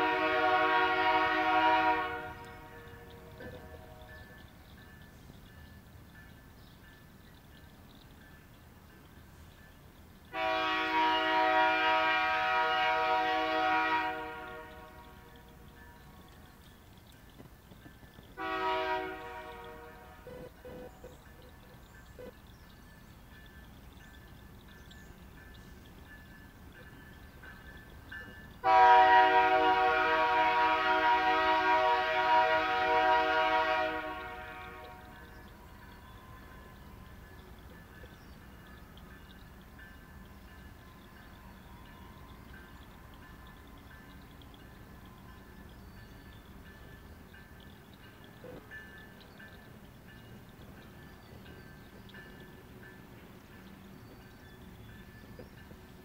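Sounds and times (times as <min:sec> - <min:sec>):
locomotive air horn blast: 0:00.0 - 0:04.1, 0:10.3 - 0:15.3, 0:18.4 - 0:20.9, 0:28.6 - 0:35.2.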